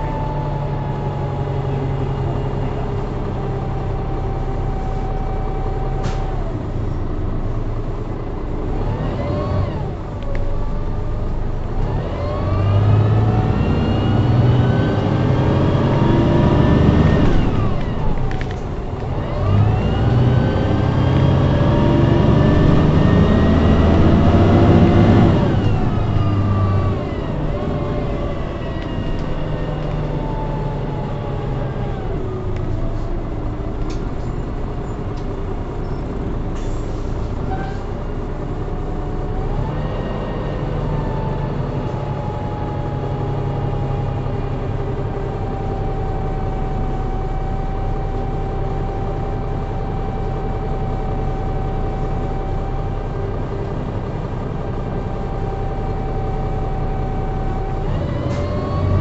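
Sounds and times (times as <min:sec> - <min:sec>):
bus diesel engine: 0:00.0 - 0:59.0
rising gearbox whine: 0:12.2 - 0:36.3.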